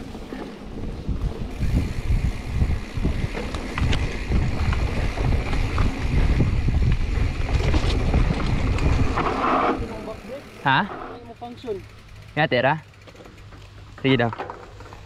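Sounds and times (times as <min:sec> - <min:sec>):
bike knocks and rattles: 0:00.0 - 0:10.2, 0:11.5 - 0:15.0
wind noise on microphone: 0:00.0 - 0:10.2.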